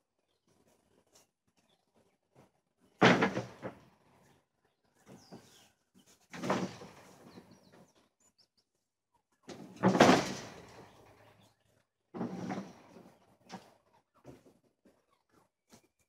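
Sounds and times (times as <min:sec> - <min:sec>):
hay bales thumping down: 0:03.0 - 0:03.8, 0:09.5 - 0:10.9.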